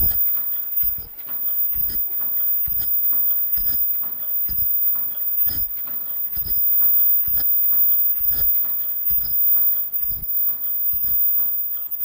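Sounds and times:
machine thumping and clattering: 0:00.0 - 0:12.0.

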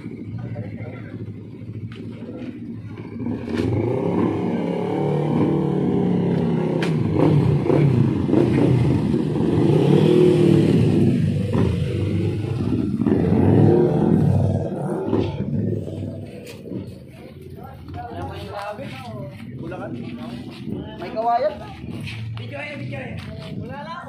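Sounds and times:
motorcycles riding past: 0:00.0 - 0:18.3.

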